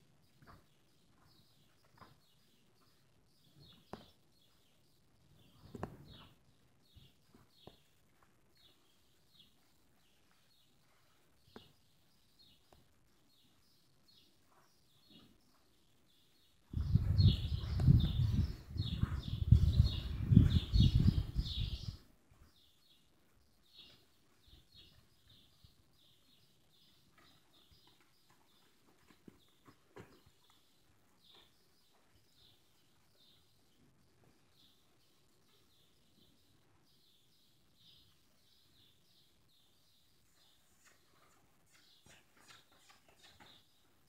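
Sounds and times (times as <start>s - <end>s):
small birds chirping: 0.0s - 44.0s
horse hooves on dirt: 26.9s - 32.3s.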